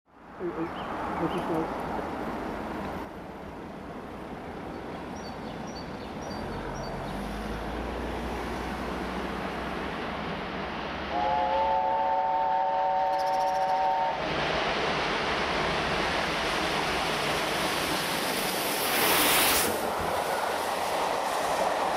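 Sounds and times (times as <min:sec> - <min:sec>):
steam locomotive whistle: 0:11.1 - 0:14.3.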